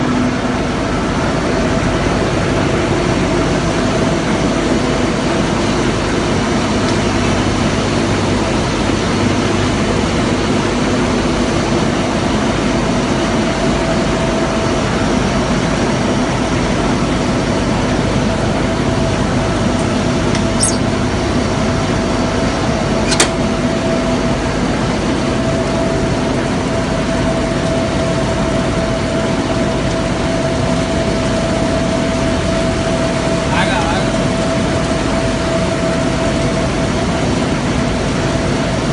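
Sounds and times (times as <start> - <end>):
machine drone with whine: 0.0 - 38.9
sharp click: 19.8 - 20.8.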